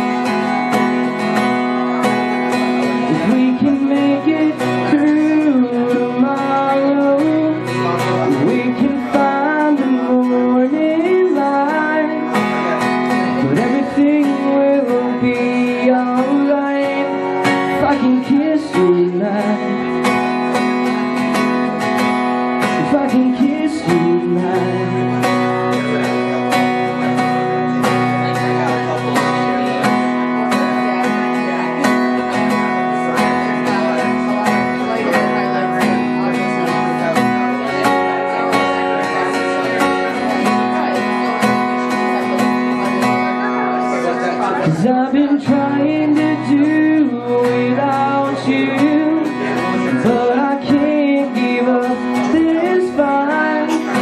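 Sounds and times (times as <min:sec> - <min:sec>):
acoustic guitar strumming chords: 0:00.0 - 0:54.0
person singing wordless vocal: 0:44.6 - 0:54.0.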